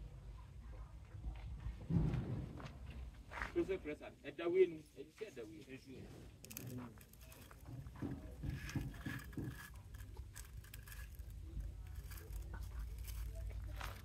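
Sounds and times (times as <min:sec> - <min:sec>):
metal clicks and scrapes: 0:06.2 - 0:14.0.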